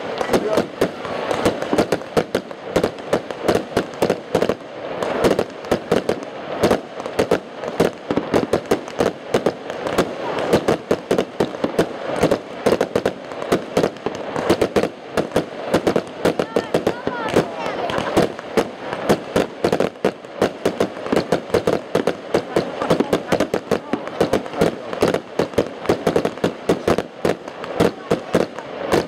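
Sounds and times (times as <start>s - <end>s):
fireworks bursting with sharp bangs: 0.0s - 29.0s.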